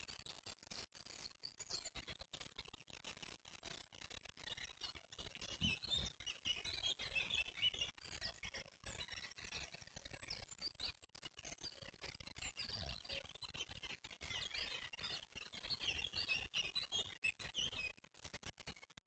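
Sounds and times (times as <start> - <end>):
small birds chirping: 5.5 - 7.8.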